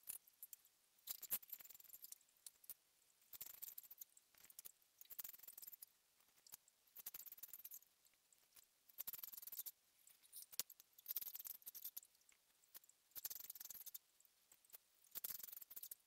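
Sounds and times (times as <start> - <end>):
small clicks: 0.0 - 16.0.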